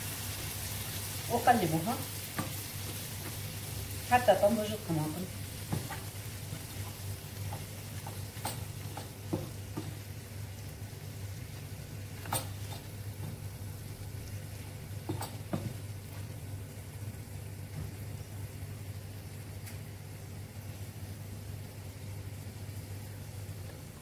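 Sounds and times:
food sizzling in a frying pan: 0:00.0 - 0:24.0
spatula stirring food: 0:02.0 - 0:04.2, 0:05.3 - 0:10.4
spatula knocking against pan: 0:07.4 - 0:10.0.

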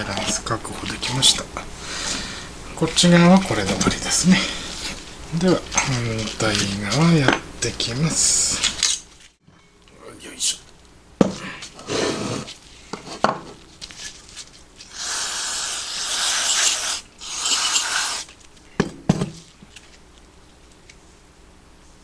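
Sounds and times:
aerosol spray can hissing: 0:14.9 - 0:18.3.

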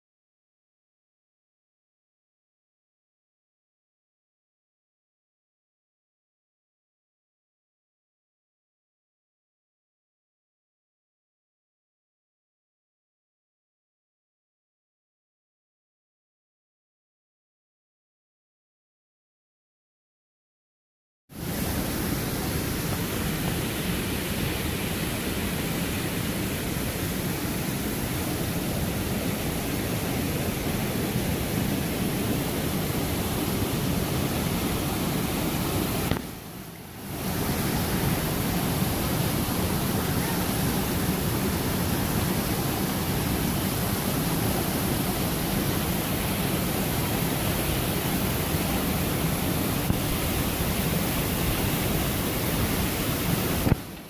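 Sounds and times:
waterfall over rocks: 0:21.4 - 0:54.0.

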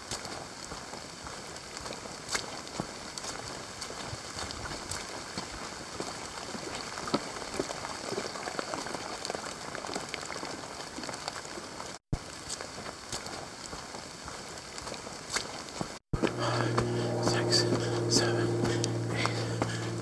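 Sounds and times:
runner's footfalls: 0:09.8 - 0:20.0.

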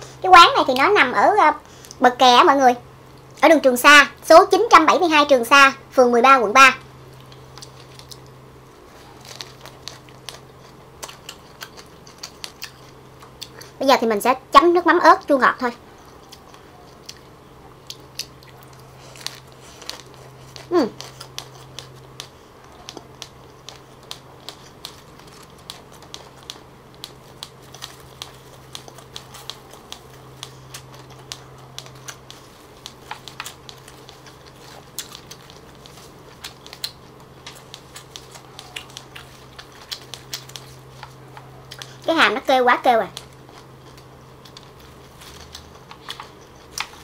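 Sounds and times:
close chewing with wet mouth clicks: 0:09.0 - 0:13.8, 0:16.0 - 0:42.0, 0:43.1 - 0:47.0
jaw clicking: 0:17.8 - 0:42.0.

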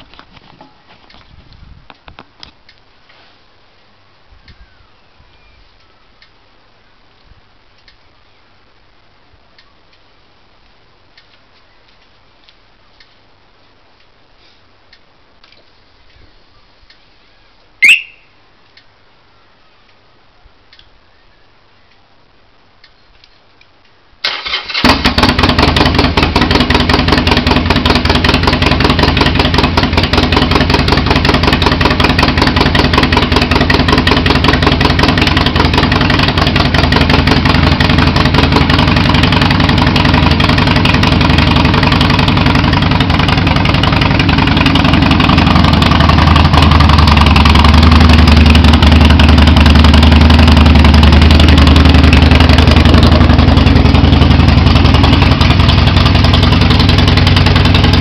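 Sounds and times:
faint clicks: 0:07.2 - 0:08.0
motorcycle engine idling: 0:24.4 - 0:58.0.

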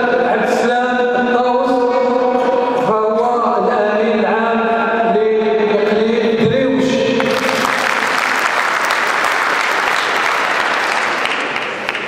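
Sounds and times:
audience applauding: 0:07.2 - 0:12.0.

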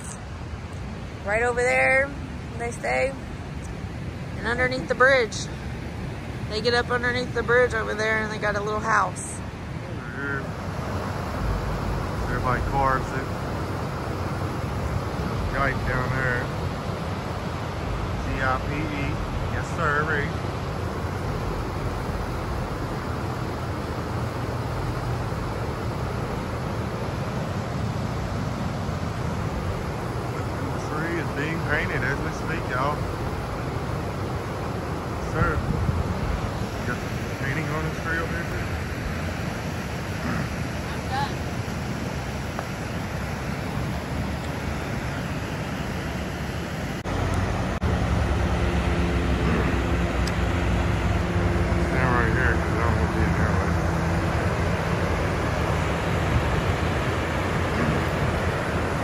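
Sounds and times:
road traffic rush: 0:00.0 - 0:59.0
vehicle engine hum: 0:00.0 - 0:59.0.

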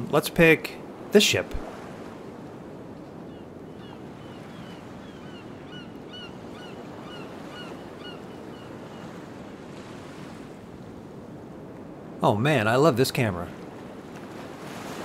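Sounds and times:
sea surf: 0:00.0 - 0:15.0
gulls calling: 0:03.1 - 0:09.7.

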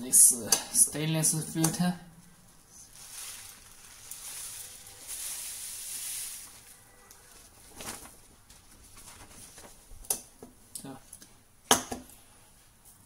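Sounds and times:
paper rustling: 0:02.8 - 0:10.0.

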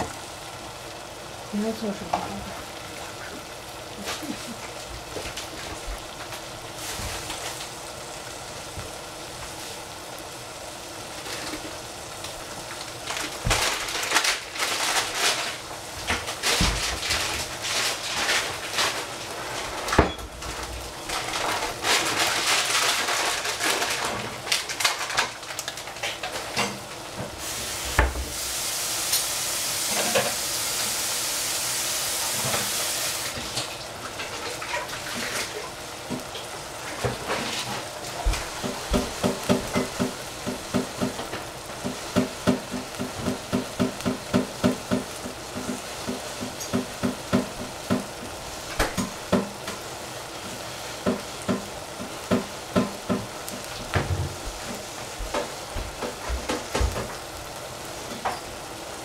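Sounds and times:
food sizzling in a saucepan: 0:00.0 - 0:59.0
water tap running: 0:27.4 - 0:36.2, 0:38.3 - 0:49.7.

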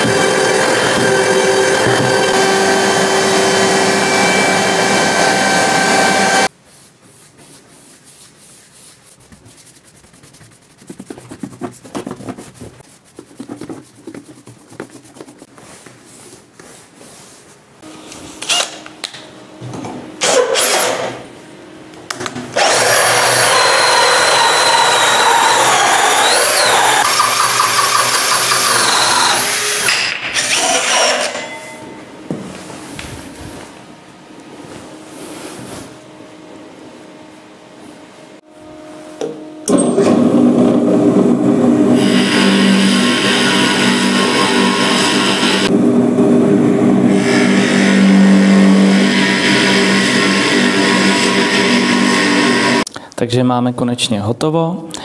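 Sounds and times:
cordless drill cutting plywood: 0:00.0 - 0:06.5, 0:22.6 - 0:31.3, 0:42.0 - 0:45.7
trim router cutting plywood: 0:00.0 - 0:06.5, 0:22.6 - 0:31.4, 0:41.9 - 0:52.8.

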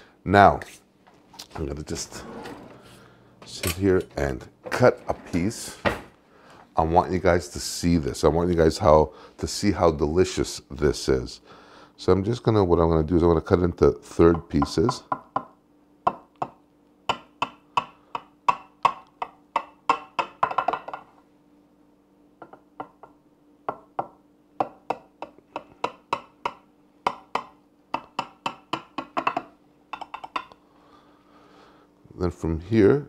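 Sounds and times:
knife tapping glass dish: 0:23.7 - 0:30.5.

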